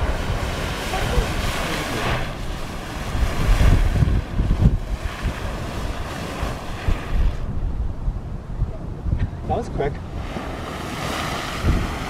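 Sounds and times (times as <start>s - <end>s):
geyser water jet splashing: 0.0s - 7.5s
wind buffeting microphone: 0.0s - 12.0s.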